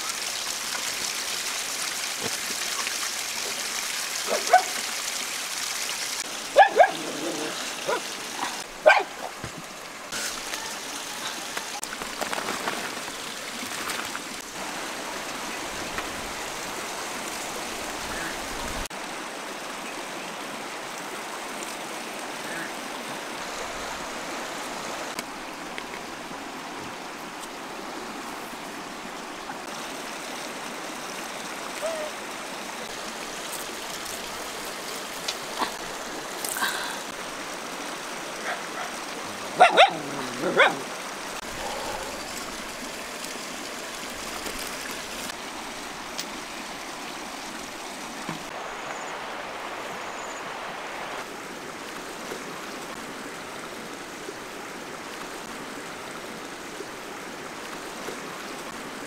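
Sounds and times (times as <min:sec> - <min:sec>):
river running over stones: 0:00.0 - 0:59.0
dog barking: 0:04.3 - 0:04.8, 0:06.5 - 0:07.2, 0:07.8 - 0:09.3, 0:39.6 - 0:40.9.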